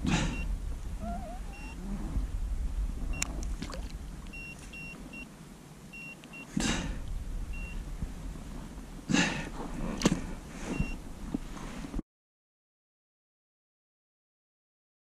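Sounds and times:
low rumble: 0.0s - 6.0s, 6.8s - 12.0s
short high beeps: 1.5s - 1.8s, 4.3s - 5.3s, 6.0s - 6.5s, 7.6s - 7.8s.

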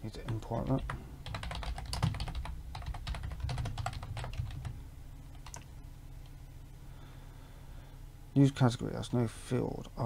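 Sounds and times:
fast typing on keyboard: 0.2s - 4.8s, 5.4s - 5.7s.

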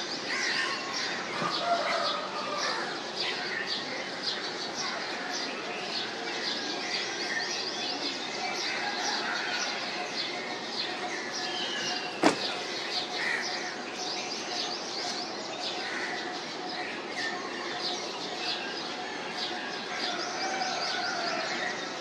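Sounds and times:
steady background noise: 0.0s - 22.0s
small birds chirping: 10.2s - 16.5s.

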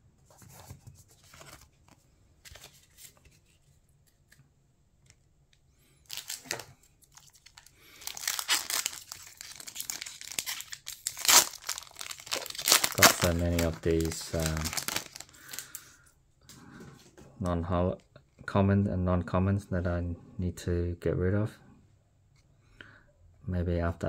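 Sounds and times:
foil pack crinkling and tearing: 6.1s - 15.9s.

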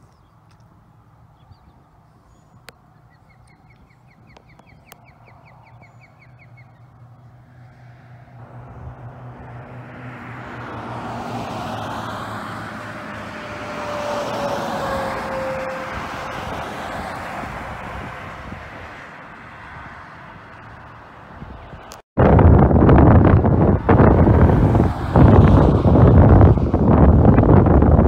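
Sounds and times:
bird trill: 1.4s - 7.1s
car passing close: 5.0s - 22.0s, 22.6s - 28.0s.

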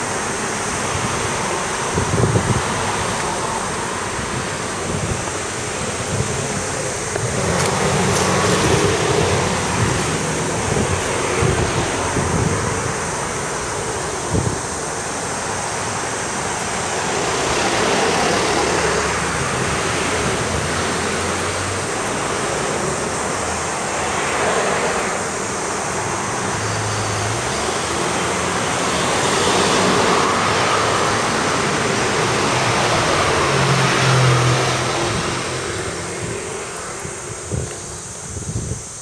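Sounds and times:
cars passing: 0.0s - 39.0s.

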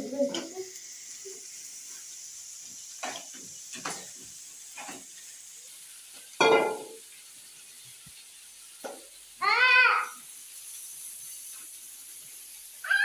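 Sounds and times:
steady hiss: 0.0s - 13.0s
child crying: 9.4s - 10.2s
young child's vocal sounds: 9.4s - 10.2s.

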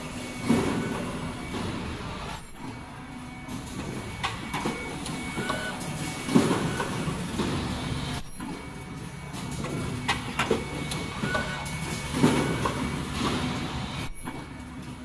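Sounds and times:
high-pitched tone: 2.3s - 3.0s, 8.2s - 8.8s, 14.0s - 14.7s
machine clatter: 3.8s - 15.0s.

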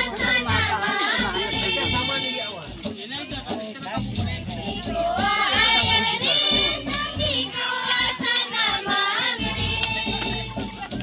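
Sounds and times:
steady rhythmic beat: 0.0s - 11.0s
girls singing in chorus: 4.7s - 10.8s.

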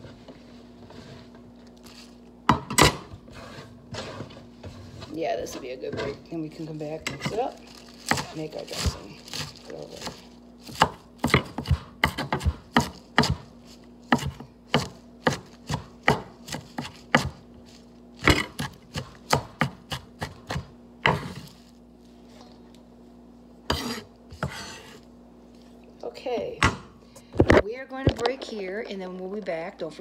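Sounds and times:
knife chopping on cutting board: 8.1s - 13.5s, 14.1s - 17.4s, 18.2s - 21.6s, 23.7s - 25.0s.

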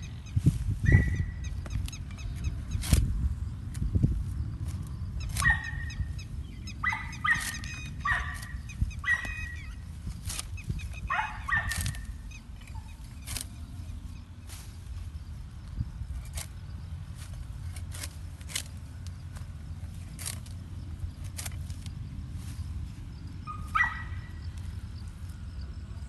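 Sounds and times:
steady low rumble: 0.0s - 26.0s
fodder stalks snapping: 1.6s - 6.2s, 6.8s - 15.0s, 15.7s - 22.5s
animal giving short high calls: 6.7s - 9.8s.

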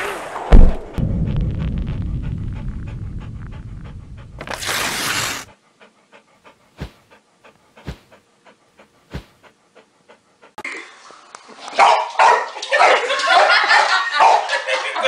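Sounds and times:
low rumble: 0.2s - 5.5s
dog panting: 2.2s - 4.5s, 5.2s - 10.6s.

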